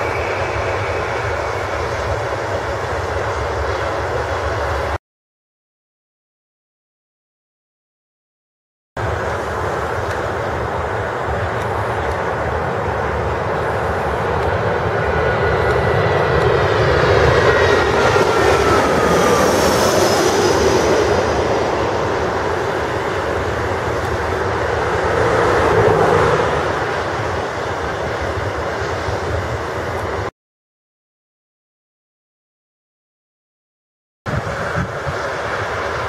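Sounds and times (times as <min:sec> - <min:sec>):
jet engine roar: 0:00.0 - 0:05.0, 0:09.0 - 0:30.3, 0:34.3 - 0:36.0
jet engine whine falling in pitch: 0:00.0 - 0:05.0, 0:09.0 - 0:30.3, 0:34.3 - 0:36.0.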